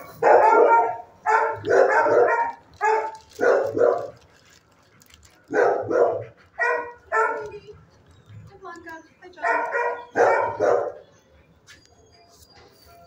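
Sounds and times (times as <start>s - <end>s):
dog barking: 0.0s - 4.2s, 5.5s - 7.6s, 9.4s - 11.0s.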